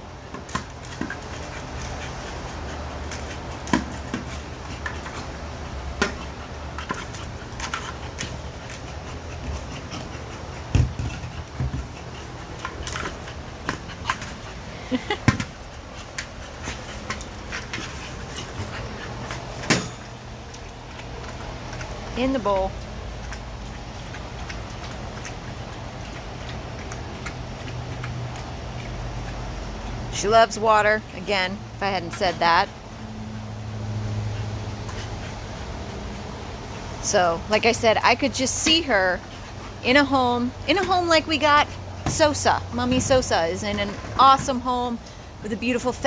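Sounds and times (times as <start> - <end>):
steady low hum: 0.0 - 46.0
ball knocks and thumps: 10.7 - 11.9.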